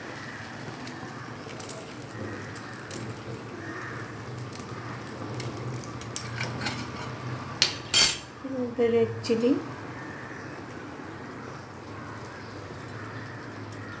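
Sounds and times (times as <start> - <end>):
gravy simmering in pan: 0.0 - 7.6, 9.6 - 14.0
steel utensils clinking: 6.2 - 8.3.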